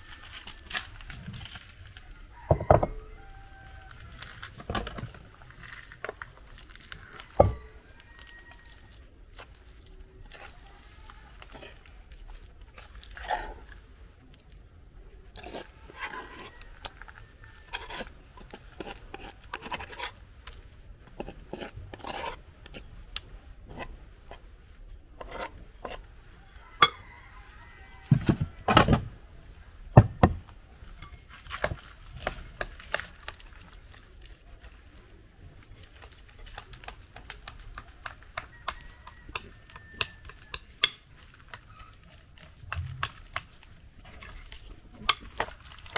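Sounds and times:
utensil scraping a wooden mortar: 0:15.3 - 0:22.9, 0:25.2 - 0:26.1, 0:31.0 - 0:45.9
stirring in a glass bowl: 0:15.4 - 0:20.2, 0:31.0 - 0:45.9.

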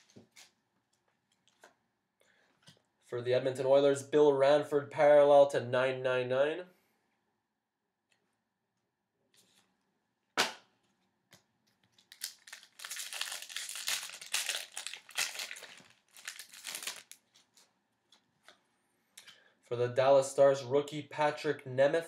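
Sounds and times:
wrapper tearing and crinkling: 0:11.9 - 0:17.7.

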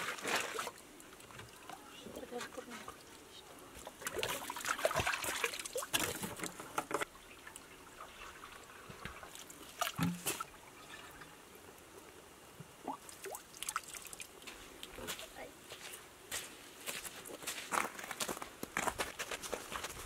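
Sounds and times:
water trickling and splashing: 0:00.0 - 0:15.9
water drips and clicks: 0:03.8 - 0:11.2, 0:12.8 - 0:15.0
splash or knock: 0:09.8 - 0:10.5.

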